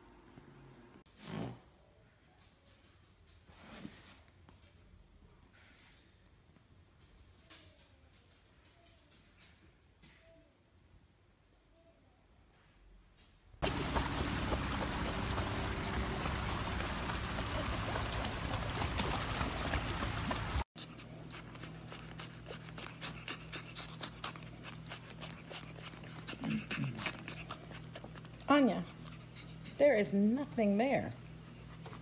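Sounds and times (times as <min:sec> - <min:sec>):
paws scratching blanket: 0:13.6 - 0:29.8
dog panting heavily: 0:20.8 - 0:28.3.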